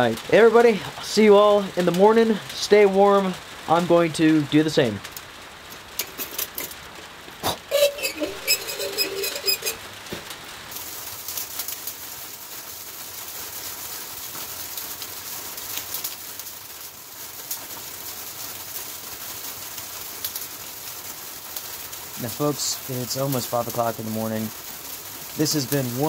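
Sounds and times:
freezing rain on shed roof: 0.0 - 26.0
squeaky metal squealing: 7.4 - 9.9.

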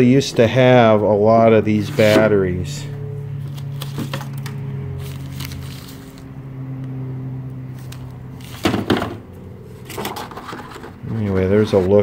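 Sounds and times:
low machine hum: 0.0 - 12.0
scraping rustle: 9.8 - 12.0.

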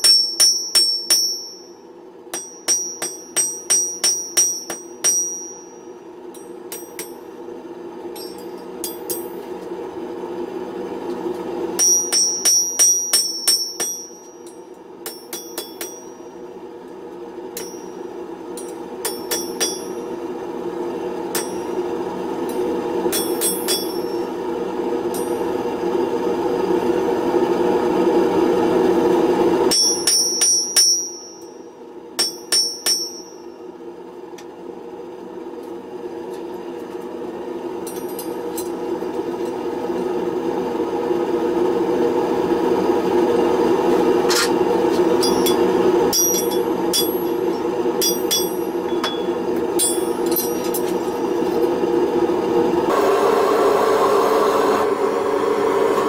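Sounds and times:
hammer ringing on anvil: 0.0 - 7.4, 8.1 - 9.6, 11.7 - 16.5, 17.5 - 20.2, 21.3 - 24.4, 25.1 - 25.6, 29.7 - 33.7, 37.8 - 38.8, 44.3 - 51.4
gas forge burner roaring: 0.0 - 56.0.

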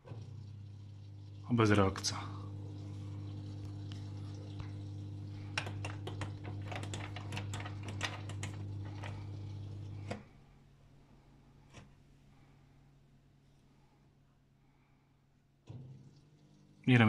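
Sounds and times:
drain pump humming: 0.0 - 10.4, 15.6 - 17.0
faint hum: 0.0 - 17.0.

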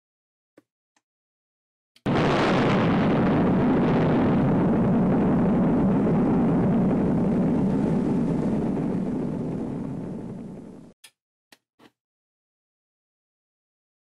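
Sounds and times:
explosion rumble: 2.1 - 11.0.

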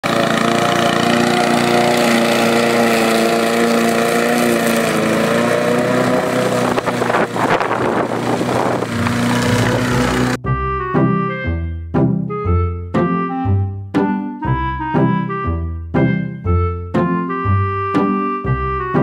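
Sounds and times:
lawn mower engine running: 0.0 - 10.4.

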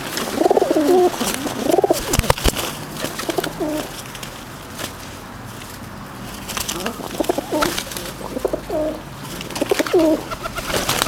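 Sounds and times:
pigeons cooing: 0.0 - 4.0, 6.3 - 11.0.

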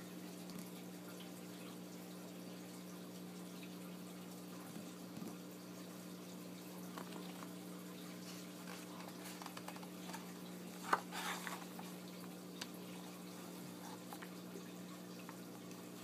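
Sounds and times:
paper rustling: 8.2 - 12.3.

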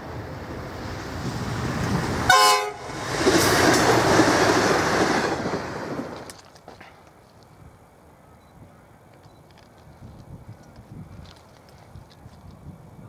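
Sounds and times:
railcar rushing past: 0.0 - 6.9
train horn toot: 2.3 - 3.0.

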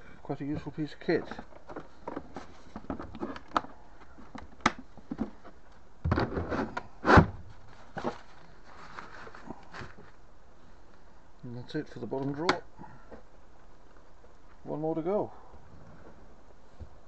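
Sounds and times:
plastic bag rustling: 7.4 - 10.2.

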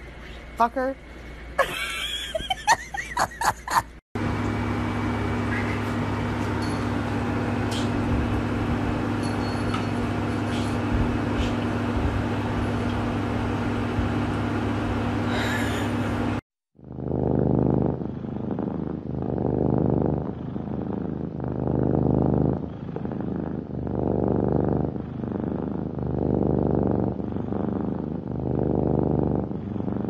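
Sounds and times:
cat purring: 16.8 - 30.0.

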